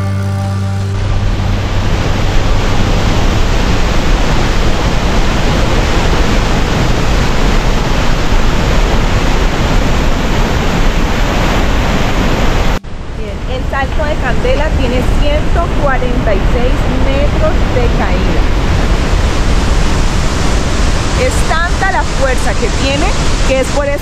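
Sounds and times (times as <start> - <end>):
background music: 0.0 - 2.4.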